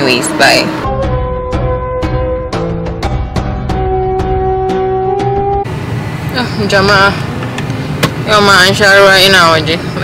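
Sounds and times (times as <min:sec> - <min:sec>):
background music with held chords: 0:00.8 - 0:05.7.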